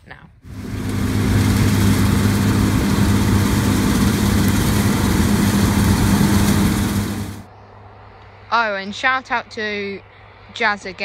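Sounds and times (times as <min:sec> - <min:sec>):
combine harvester engine hum: 0:00.4 - 0:07.6
threshing noise: 0:00.5 - 0:07.5.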